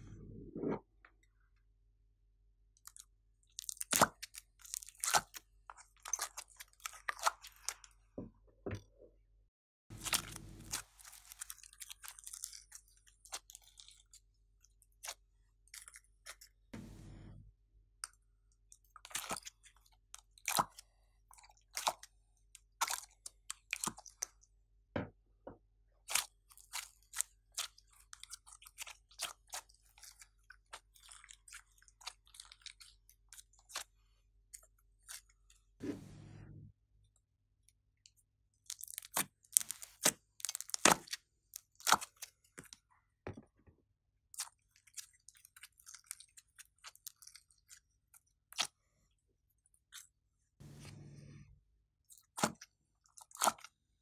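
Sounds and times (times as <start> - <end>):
slime squishing by hand: 9.9 - 14.2.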